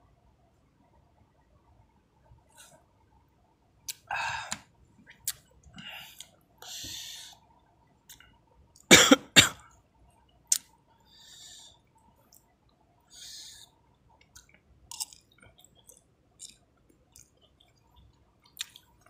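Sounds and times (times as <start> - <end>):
man coughing: 8.9 - 9.6.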